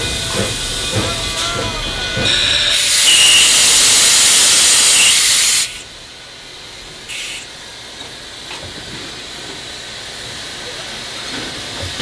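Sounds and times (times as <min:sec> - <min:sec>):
steam hissing: 0:00.0 - 0:05.9, 0:07.0 - 0:08.5.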